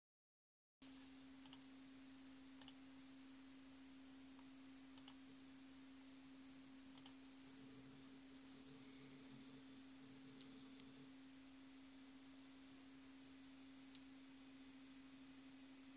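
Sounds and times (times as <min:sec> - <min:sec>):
steady low hum: 0:00.8 - 0:15.9
faint computer mouse clicks: 0:01.4 - 0:01.6, 0:02.6 - 0:02.8, 0:05.0 - 0:05.2, 0:07.0 - 0:07.2, 0:10.3 - 0:14.1.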